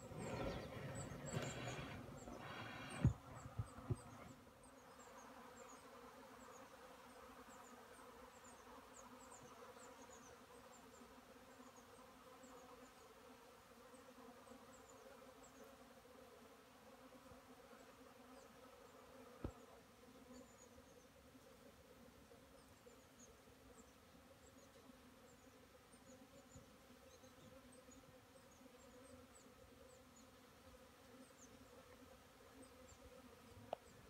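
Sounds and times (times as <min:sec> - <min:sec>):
honeybees buzzing: 0:00.0 - 0:10.1.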